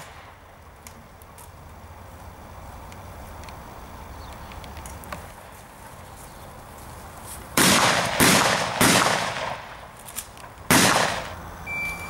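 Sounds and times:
shotgun shots with echo: 7.6s - 9.8s, 10.7s - 11.3s.

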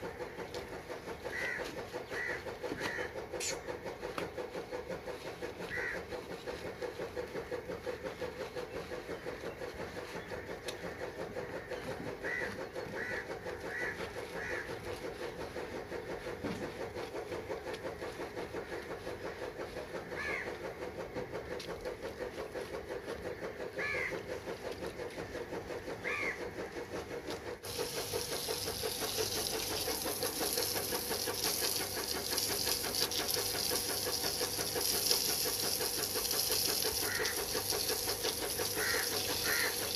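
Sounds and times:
small engine running: 0.0s - 39.9s.

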